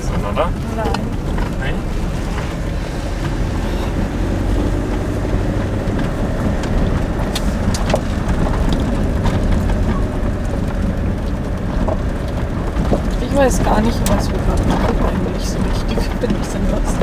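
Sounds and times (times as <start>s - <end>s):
engine and tyre rumble: 0.0s - 17.0s
sharp clicks and knocks: 4.6s - 17.0s.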